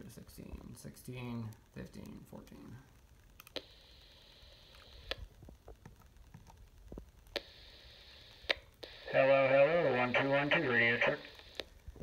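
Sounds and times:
radio squelch static hiss: 0.0s - 12.0s
voice over radio: 9.0s - 11.4s.

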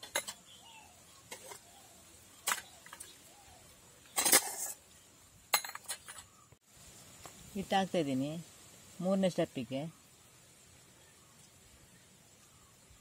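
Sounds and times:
steel cups clinking: 5.5s - 6.3s.

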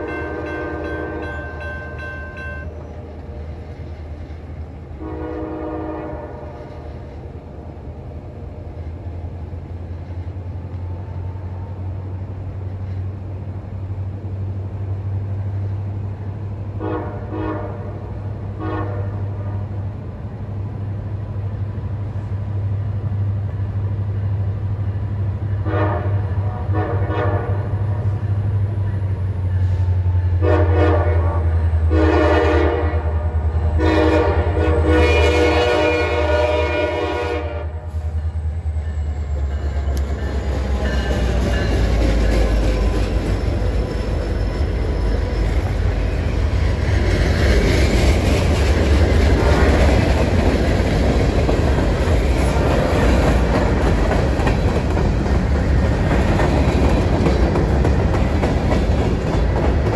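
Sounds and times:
locomotive air horn blasts: 0.0s - 3.1s, 5.0s - 6.9s, 16.7s - 19.7s, 25.5s - 28.2s, 29.6s - 38.3s
train rumble: 0.0s - 59.9s.

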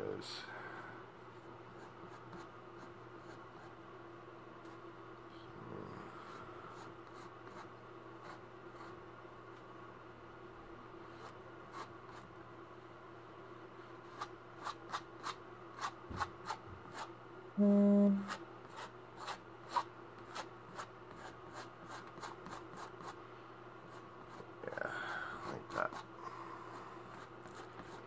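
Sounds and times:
short low buzz: 17.6s - 18.4s
painting knife scraping on canvas: 18.3s - 23.2s.

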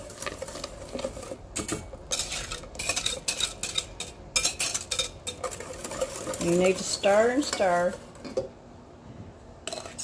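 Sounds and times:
metal utensil scraping saucepan: 0.0s - 8.4s, 9.6s - 10.0s.

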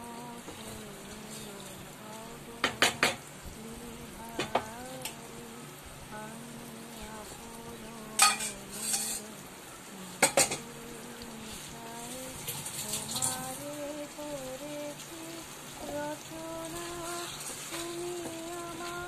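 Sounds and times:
chicken sizzling in oil: 6.9s - 19.0s.

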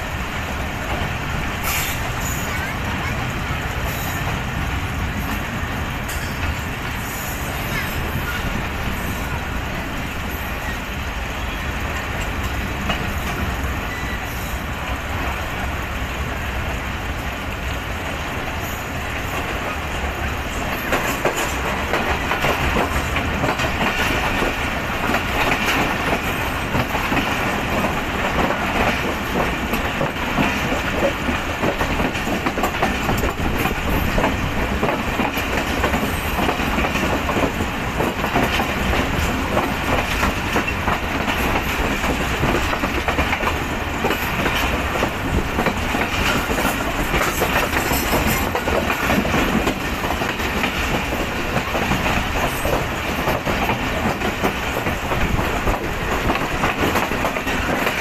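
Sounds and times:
train wheels clattering on rails: 0.0s - 58.0s.

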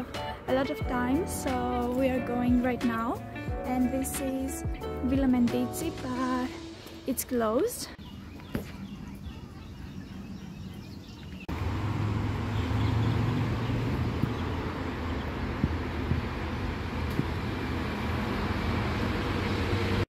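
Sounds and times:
quiet outdoor background: 0.0s - 20.0s
road traffic rushing: 9.2s - 20.0s.

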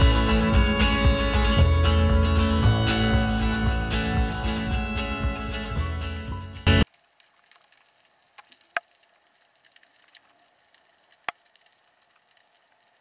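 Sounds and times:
background music: 0.0s - 6.9s
faint crackling underwater hiss: 6.8s - 13.0s.

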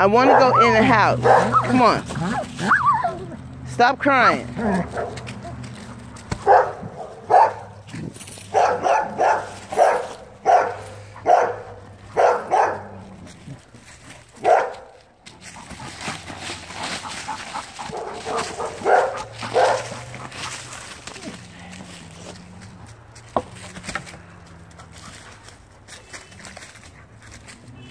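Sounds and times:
rustling in dry leaves: 0.0s - 27.9s
dog barking: 0.2s - 3.1s, 4.6s - 5.2s, 6.4s - 7.8s, 8.5s - 13.0s, 14.4s - 14.9s, 17.9s - 20.1s.

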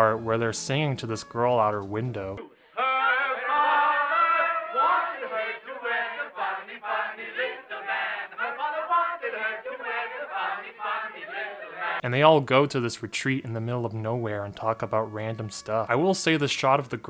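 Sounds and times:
men singing together: 2.8s - 12.0s.

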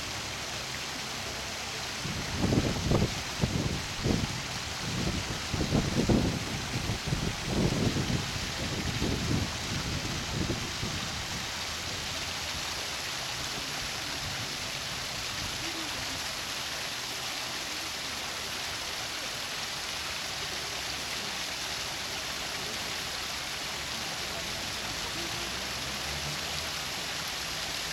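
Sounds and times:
waterfall splashing into a pool: 0.0s - 27.9s
wind buffeting microphone: 2.0s - 11.3s.

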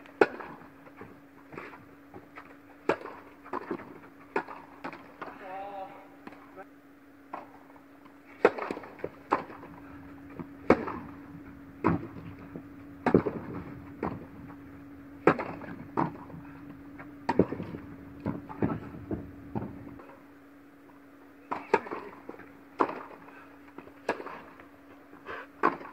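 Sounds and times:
steady low hum: 0.0s - 25.9s
racquets striking tennis ball: 0.1s - 5.4s, 7.3s - 20.2s, 21.4s - 24.7s, 25.6s - 25.9s
tennis ball bouncing on court: 2.8s - 5.3s, 8.4s - 14.6s, 15.2s - 20.0s, 21.5s - 23.2s, 23.8s - 24.4s.

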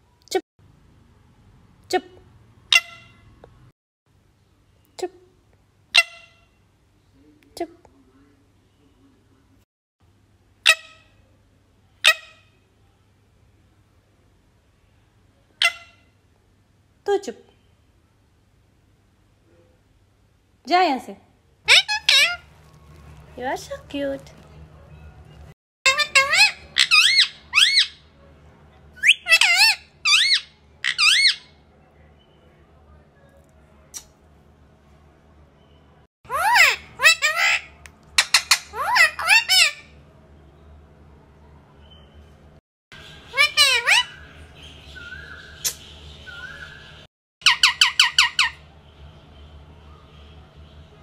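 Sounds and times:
parakeet shrill calls: 21.7s - 23.0s, 25.9s - 28.0s, 29.0s - 31.5s, 36.3s - 39.9s, 43.0s - 48.6s.

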